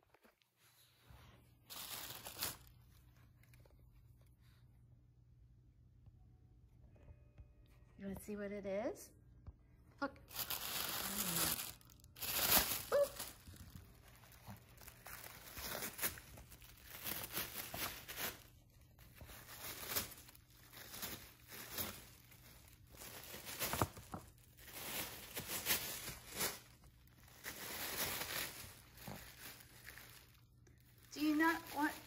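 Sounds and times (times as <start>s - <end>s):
dog tearing tissue paper: 10.3s - 32.0s.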